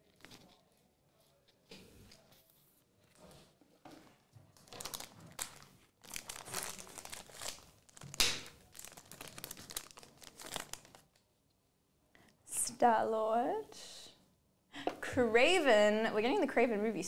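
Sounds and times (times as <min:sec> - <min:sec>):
foil wrapper crinkling and tearing: 0:04.6 - 0:11.2.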